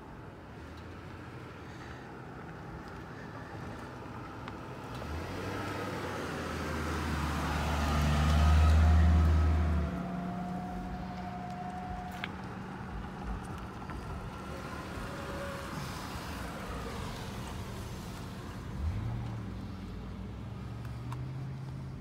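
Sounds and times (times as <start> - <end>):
vehicle engine hum passing by: 1.2 - 22.0.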